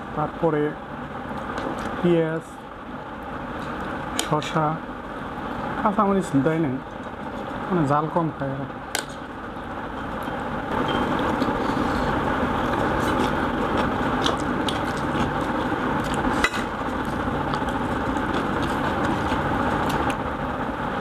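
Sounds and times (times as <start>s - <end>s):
steady background hum: 0.0s - 21.0s
eating rice by hand: 9.9s - 20.5s.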